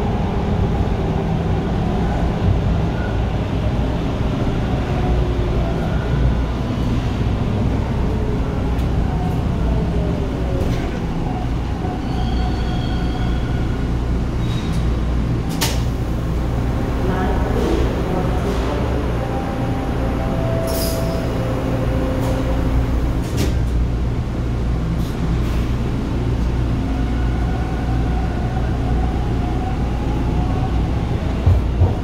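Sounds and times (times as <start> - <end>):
subway train rumbling: 0.0 - 32.0.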